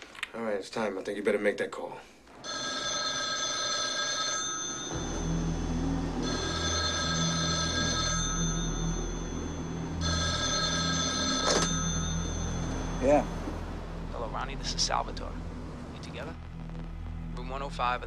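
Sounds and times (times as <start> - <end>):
payphone ringing: 2.4 - 5.3, 6.2 - 12.8
steady low drone: 4.9 - 18.0.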